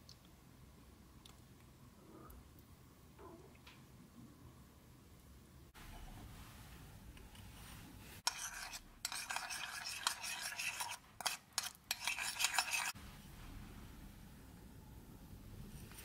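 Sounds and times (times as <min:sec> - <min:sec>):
metal spoon scraping ceramic bowl: 0:08.2 - 0:13.0.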